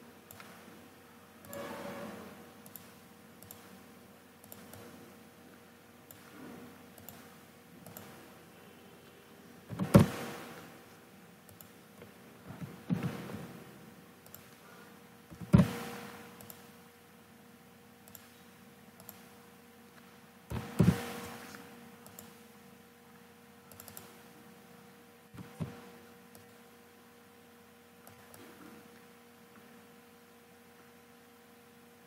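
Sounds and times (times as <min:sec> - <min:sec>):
faint electrical hum: 0:00.0 - 0:32.0
computer mouse clicks: 0:00.3 - 0:00.6, 0:02.6 - 0:03.8, 0:04.4 - 0:05.0, 0:06.1 - 0:06.4, 0:07.0 - 0:08.2, 0:11.5 - 0:13.0, 0:14.2 - 0:14.6, 0:16.4 - 0:16.8, 0:18.0 - 0:18.4, 0:19.0 - 0:19.4, 0:21.6 - 0:22.4, 0:23.7 - 0:24.2, 0:25.4 - 0:26.6, 0:28.0 - 0:28.6.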